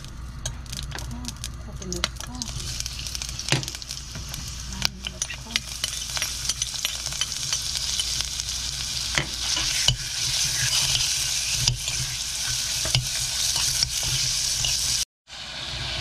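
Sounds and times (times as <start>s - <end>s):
meat sizzling in oil: 0.0s - 16.0s
metal spoon scraping a pot: 5.0s - 8.2s, 9.2s - 15.0s.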